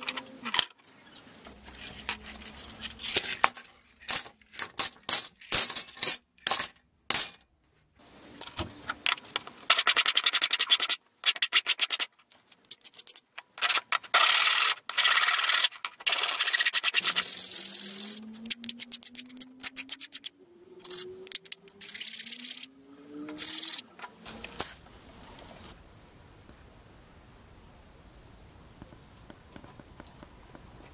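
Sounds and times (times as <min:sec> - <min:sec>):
steel plates clinking: 0:01.5 - 0:07.5.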